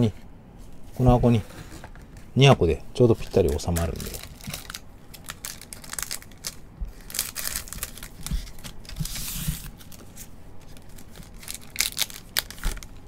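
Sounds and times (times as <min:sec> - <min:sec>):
foil wrappers crinkling: 0:03.0 - 0:13.0.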